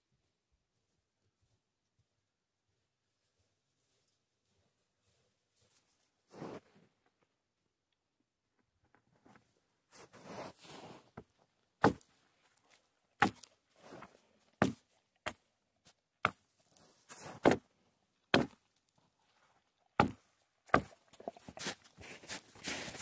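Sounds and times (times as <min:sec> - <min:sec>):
axe chopping branches: 0:11.8 - 0:12.0, 0:13.2 - 0:13.5, 0:17.4 - 0:17.6, 0:18.3 - 0:18.6, 0:20.0 - 0:20.9.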